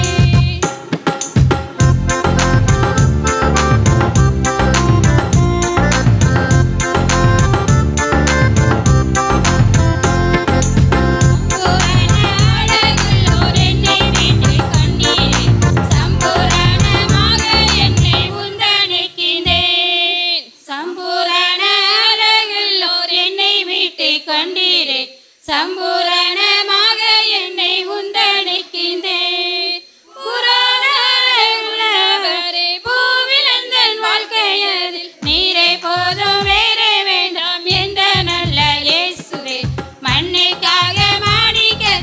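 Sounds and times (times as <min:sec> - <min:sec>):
low beats: 0:00.0 - 0:00.6, 0:01.4 - 0:19.8, 0:40.0 - 0:42.0
women singing in unison: 0:00.0 - 0:00.8, 0:11.5 - 0:42.0.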